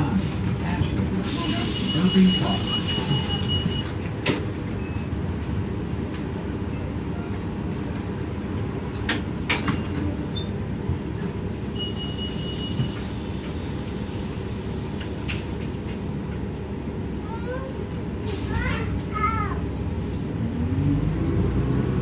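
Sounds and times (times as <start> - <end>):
bus engine drone: 0.0 - 22.0
bus body rattling: 0.3 - 11.6.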